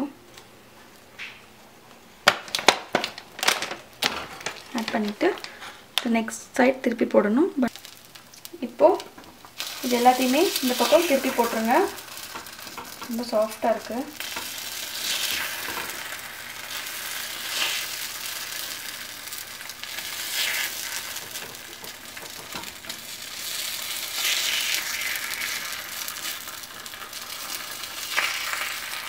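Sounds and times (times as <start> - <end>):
batter sizzling in oil: 7.7 - 29.0.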